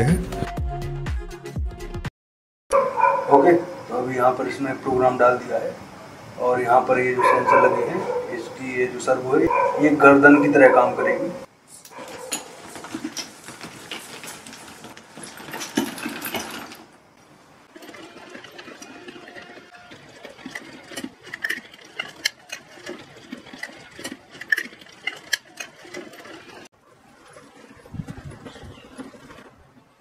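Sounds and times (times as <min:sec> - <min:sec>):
small motors whirring: 0:17.6 - 0:29.6.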